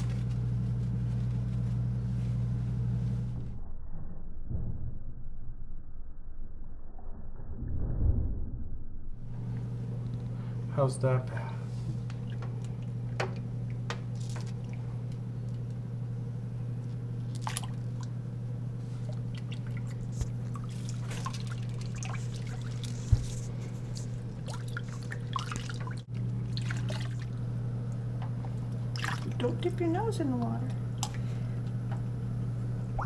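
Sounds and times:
steady low hum: 0:00.0 - 0:33.0
water splashing in metal sink: 0:17.3 - 0:18.1, 0:19.0 - 0:23.2, 0:24.0 - 0:27.4, 0:28.3 - 0:29.7.

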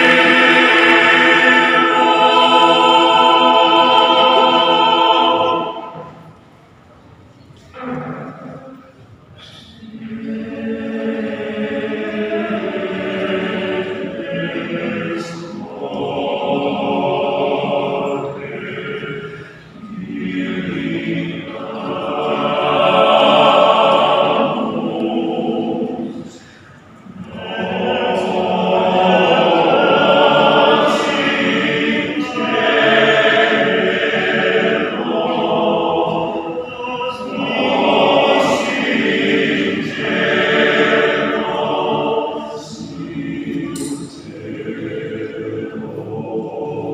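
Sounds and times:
men's choir singing: 0:00.0 - 0:06.4, 0:09.8 - 0:46.9
singers breathing: 0:19.2 - 0:19.8, 0:26.3 - 0:27.0.

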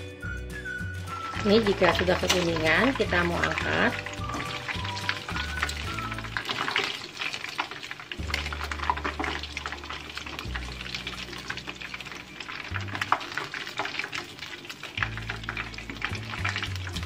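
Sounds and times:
background music with bass line: 0:00.0 - 0:06.5, 0:08.2 - 0:13.1, 0:15.0 - 0:17.0
hot oil sizzling and crackling: 0:00.0 - 0:17.0.

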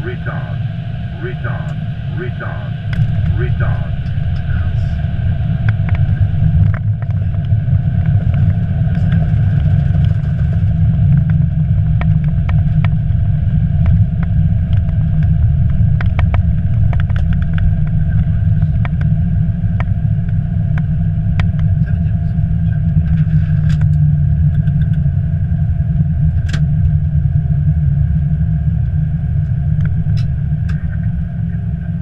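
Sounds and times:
wheels rumbling on runway: 0:00.0 - 0:32.0
light rattles and clicks: 0:22.9 - 0:25.0.

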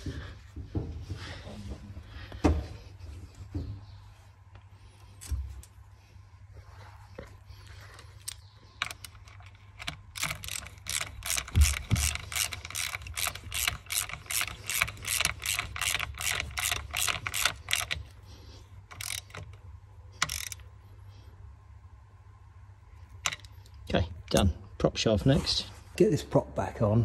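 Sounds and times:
ratchet wrench clicking: 0:08.2 - 0:18.2, 0:18.9 - 0:19.6, 0:20.2 - 0:20.7.

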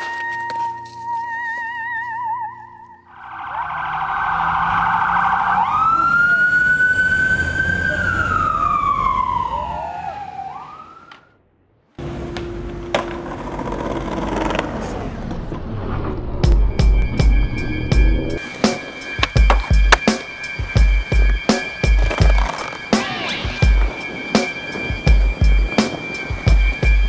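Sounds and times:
siren wail: 0:00.0 - 0:11.4, 0:20.3 - 0:27.0
skateboard rolling on pavement: 0:12.0 - 0:16.6, 0:18.4 - 0:27.0
skateboard clacks: 0:12.2 - 0:14.9, 0:19.2 - 0:20.3, 0:21.2 - 0:23.2.

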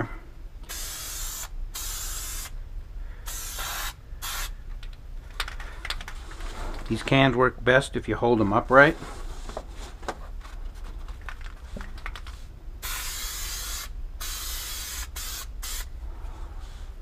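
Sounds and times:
aerosol spray can hissing: 0:00.6 - 0:02.6, 0:03.3 - 0:04.6, 0:12.8 - 0:15.9.

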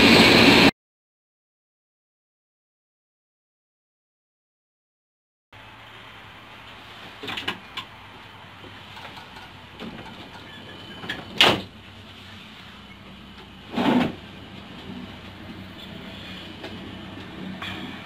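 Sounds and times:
train running hum: 0:00.0 - 0:00.7, 0:05.6 - 0:18.0.

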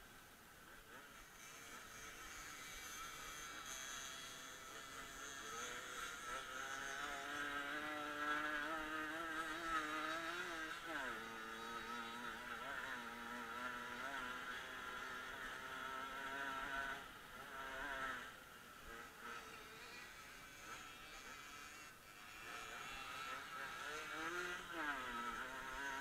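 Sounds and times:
motorcycle engine revving: 0:00.8 - 0:26.0.

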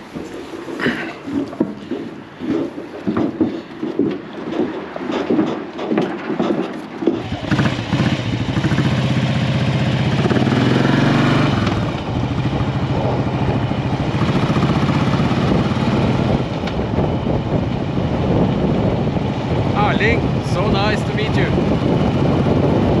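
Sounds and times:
wind rushing over microphone: 0:00.0 - 0:23.0
motorcycle engine revving: 0:07.1 - 0:20.7, 0:21.5 - 0:23.0.

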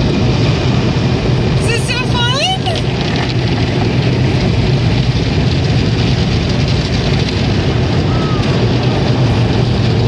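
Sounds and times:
car wash machinery roaring: 0:00.0 - 0:10.0.

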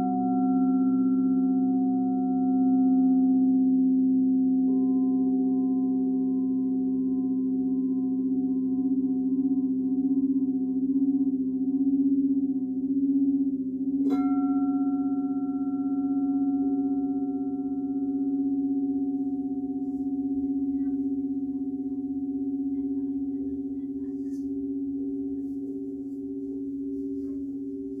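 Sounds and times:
singing bowl rim drone: 0:00.0 - 0:28.0
singing bowl struck with mallet: 0:14.0 - 0:28.0.

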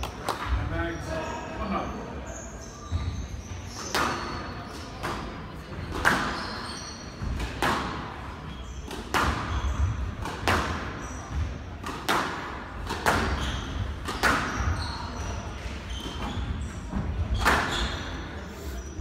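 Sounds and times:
squash racket hitting ball: 0:07.2 - 0:08.2, 0:08.9 - 0:18.2.

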